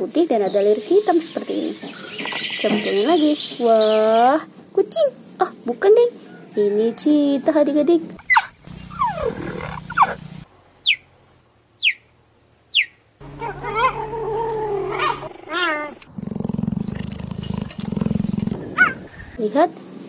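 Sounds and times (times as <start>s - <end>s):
cheetah wavering calls: 8.2s - 11.0s
cheetah chirping: 8.2s - 11.2s, 11.8s - 12.1s, 12.7s - 13.0s
cheetah purring: 8.3s - 10.4s, 14.1s - 19.4s.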